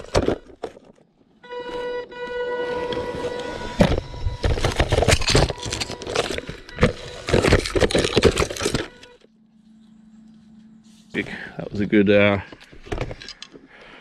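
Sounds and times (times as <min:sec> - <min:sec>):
drive motors whining: 0:01.5 - 0:12.8
faint low hum: 0:06.9 - 0:13.3.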